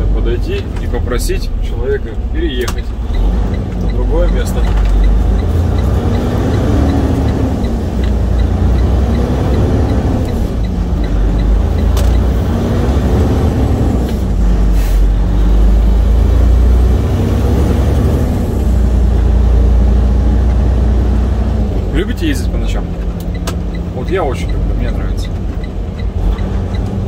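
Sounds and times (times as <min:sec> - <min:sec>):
truck diesel engine running: 0:00.0 - 0:27.0
air brake hiss: 0:14.7 - 0:15.1.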